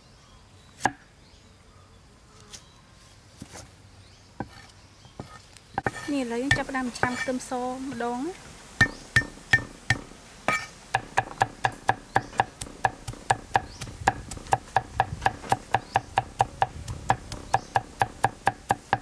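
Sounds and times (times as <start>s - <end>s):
cleaver chopping on wooden block: 8.8s - 19.0s.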